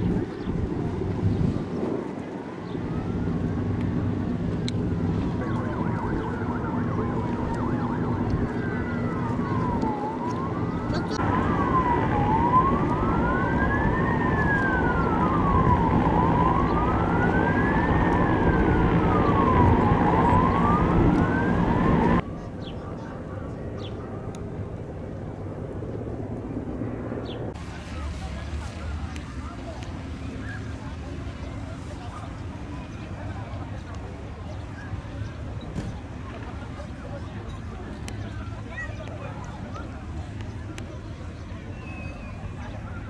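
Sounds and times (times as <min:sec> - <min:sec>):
low engine rumble: 0:00.0 - 0:43.0
siren wailing: 0:02.8 - 0:22.2, 0:27.4 - 0:33.9
siren warbling: 0:02.8 - 0:22.2, 0:27.5 - 0:33.8.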